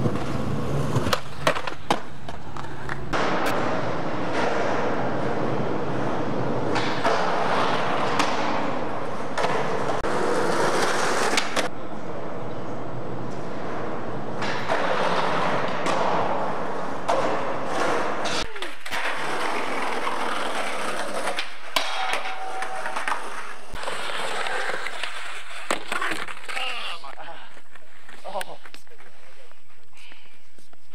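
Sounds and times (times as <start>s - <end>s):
skateboard clacking on ground: 0.0s - 4.9s, 17.0s - 29.2s
skateboard wheels rolling on concrete: 0.0s - 29.9s.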